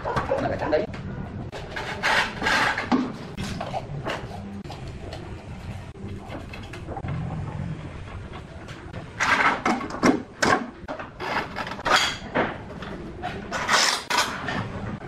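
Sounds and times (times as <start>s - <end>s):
tile cutter scraping: 1.6s - 3.0s.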